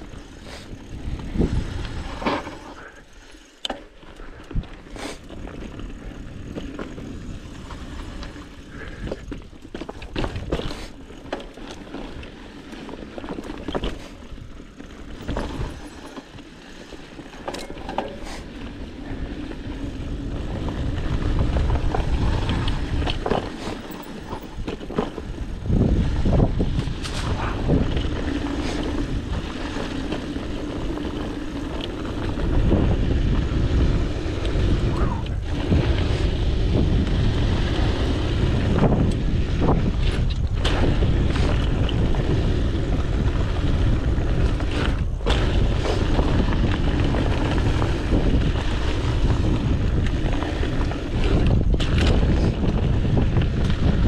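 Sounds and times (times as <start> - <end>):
wind rushing over microphone: 0.0 - 2.9, 18.1 - 54.0
bike tyres crunching on dirt: 0.0 - 54.0
bike clattering over bumps: 3.6 - 54.0.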